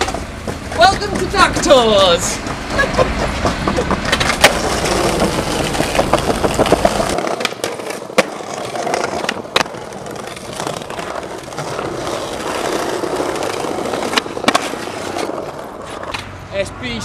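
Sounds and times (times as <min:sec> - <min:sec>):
low vehicle rumble: 0:00.0 - 0:07.2
skateboard clacking on ground: 0:00.0 - 0:16.3
skateboard wheels rolling on pavement: 0:00.0 - 0:17.0.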